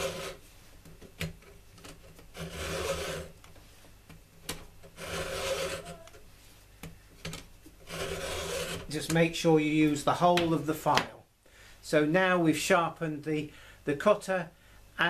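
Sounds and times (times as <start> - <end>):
file rasping on chainsaw chain: 0.0 - 0.4, 2.4 - 3.4, 5.0 - 6.0, 7.9 - 8.9.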